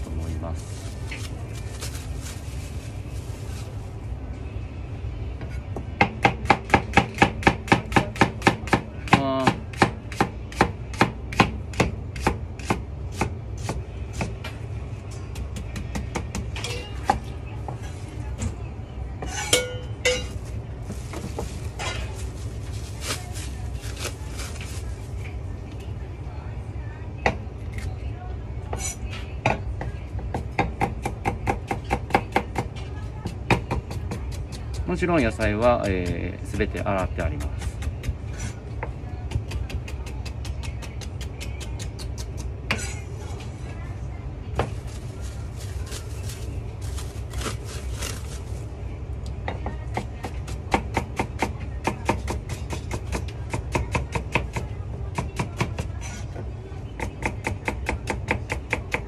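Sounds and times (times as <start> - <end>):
plastic bag rustling: 0.0 - 4.1, 20.4 - 25.3, 44.7 - 48.7
steady low hum: 0.0 - 59.0
plastic cling wrap crinkling: 0.5 - 4.0, 20.9 - 25.2, 44.7 - 48.7.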